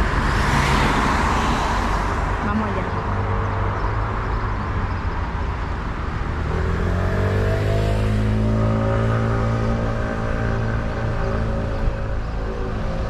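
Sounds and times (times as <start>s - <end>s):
street rumble: 0.0s - 13.0s
vehicle engine accelerating: 5.8s - 13.0s.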